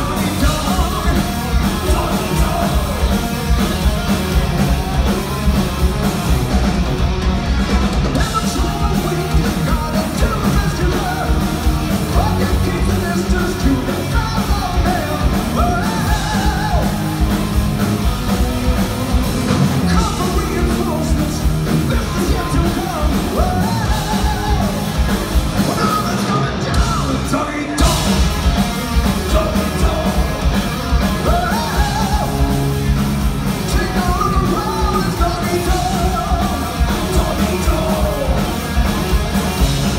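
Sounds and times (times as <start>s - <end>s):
person singing: 0.0s - 4.6s, 8.2s - 17.1s, 19.8s - 25.0s, 29.0s - 32.6s, 33.6s - 38.6s
heavy metal band playing live: 0.0s - 39.9s.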